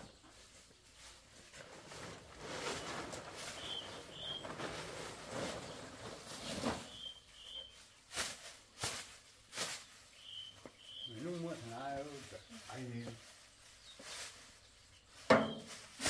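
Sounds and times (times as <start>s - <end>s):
plastic tarpaulins rustling: 0.0s - 16.0s
sharp crackles: 1.6s - 13.0s.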